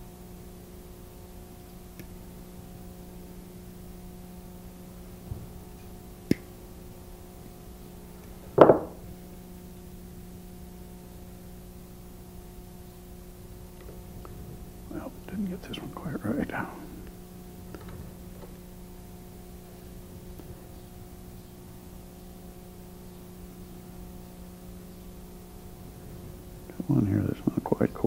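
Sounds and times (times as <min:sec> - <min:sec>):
steady low hum: 0:00.0 - 0:28.0
short knock: 0:08.6 - 0:09.0.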